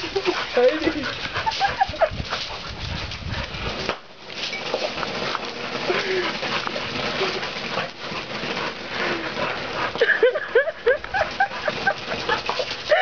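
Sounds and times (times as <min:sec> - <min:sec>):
firework hissing and sputtering: 0:03.7 - 0:13.0.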